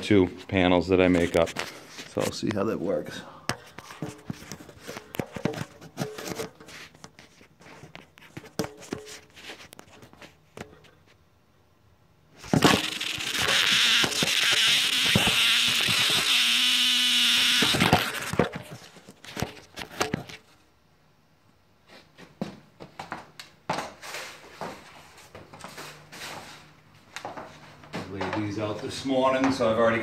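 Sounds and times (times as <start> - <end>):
loud steady noise: 12.5 - 18.5.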